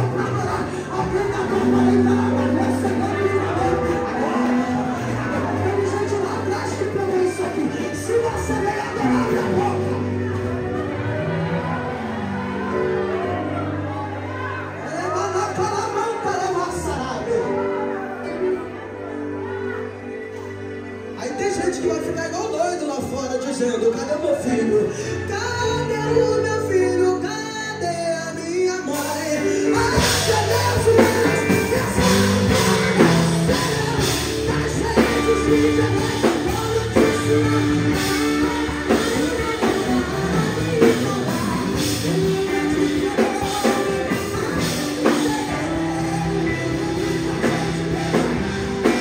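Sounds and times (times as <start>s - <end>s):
man singing into a microphone: 0.0s - 10.3s, 24.0s - 49.0s
gospel band playing: 0.0s - 49.0s
drums: 29.0s - 49.0s.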